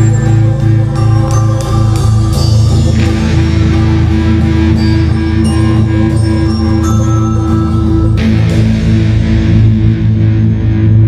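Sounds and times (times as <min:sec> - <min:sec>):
rock music with guitar: 0:00.0 - 0:11.0.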